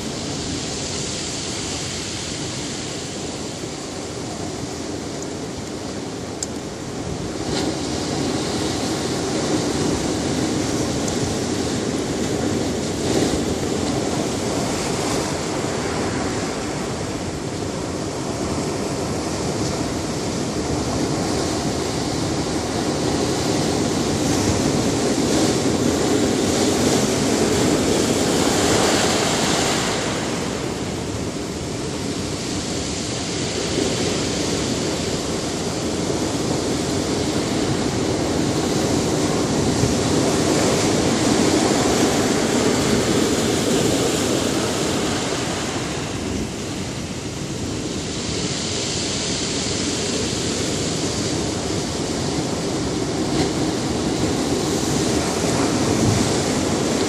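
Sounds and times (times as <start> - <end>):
ocean surf crashing on rocks: 0.0 - 57.0.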